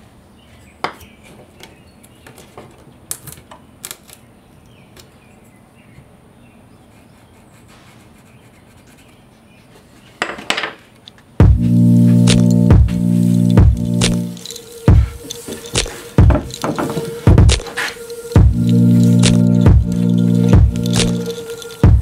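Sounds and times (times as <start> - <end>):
sharp clicks: 12.3 - 12.6, 13.5 - 22.0
faint scratching: 13.2 - 21.9.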